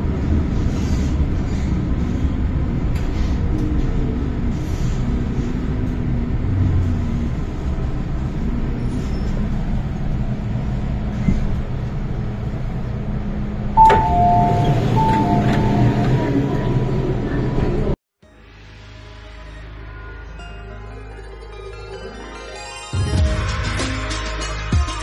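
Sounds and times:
train interior rumble and hum: 0.0s - 18.0s
two-tone door chime: 13.8s - 16.4s.

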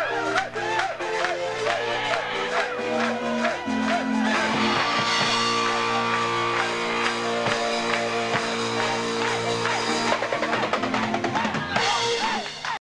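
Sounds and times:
live dance band chord: 0.0s - 12.8s
electric guitar: 0.8s - 12.6s
fast drum roll: 4.3s - 12.8s.

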